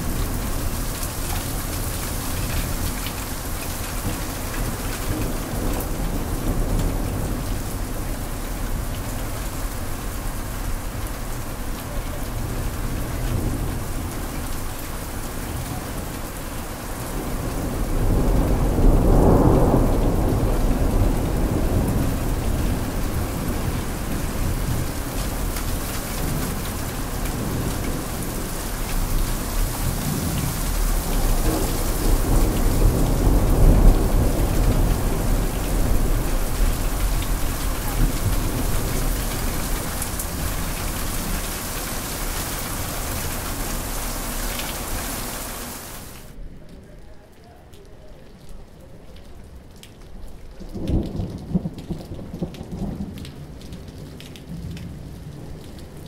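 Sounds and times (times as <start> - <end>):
heavy rain falling: 0.0 - 56.0
thunder rumbling: 17.1 - 46.4.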